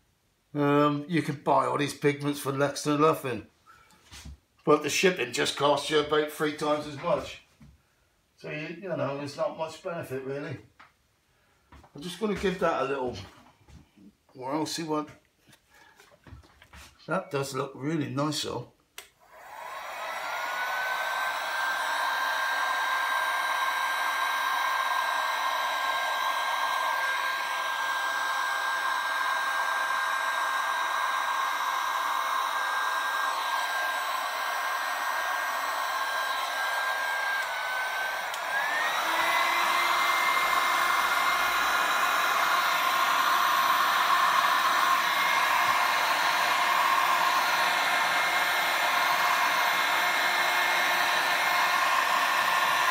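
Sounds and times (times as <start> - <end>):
heat gun motor whine: 19.2 - 52.9.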